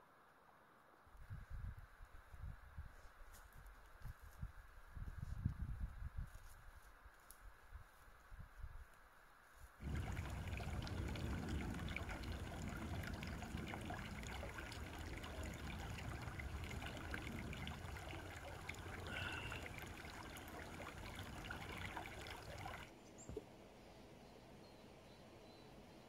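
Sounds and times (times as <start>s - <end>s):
brook trickling and splashing: 9.8s - 22.9s.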